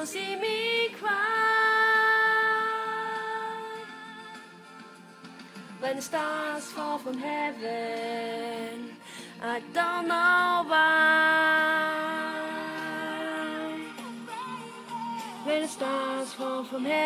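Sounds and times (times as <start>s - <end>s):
person singing slow melody: 5.8s - 17.0s.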